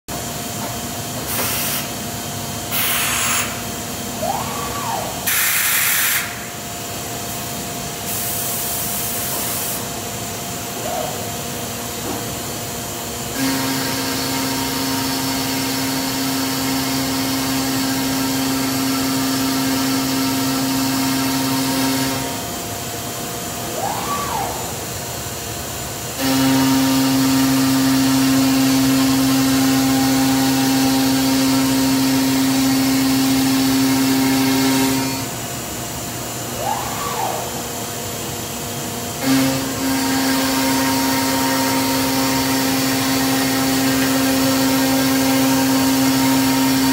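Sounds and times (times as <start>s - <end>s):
router machine hum: 13.0s - 23.0s, 23.7s - 35.4s, 38.5s - 46.9s
motor whine: 36.4s - 46.9s.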